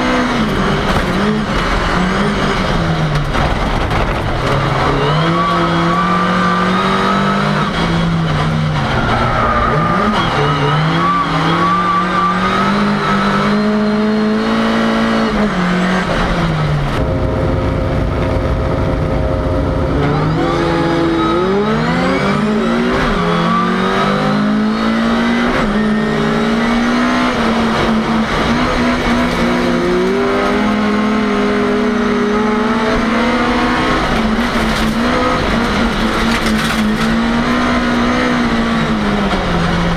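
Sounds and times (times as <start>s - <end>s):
car engine revving through gears: 0.0s - 39.9s.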